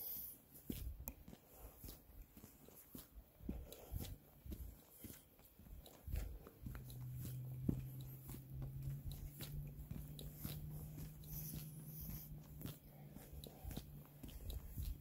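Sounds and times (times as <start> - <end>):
steady low hum: 0.0 - 15.0
footsteps crunching on gravel: 0.7 - 15.0.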